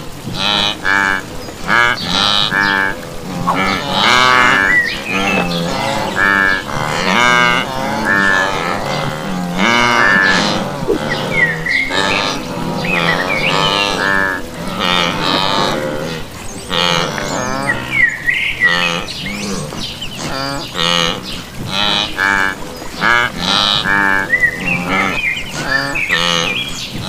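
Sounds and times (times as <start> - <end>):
wildebeest lowing grunts: 0.4 - 17.9.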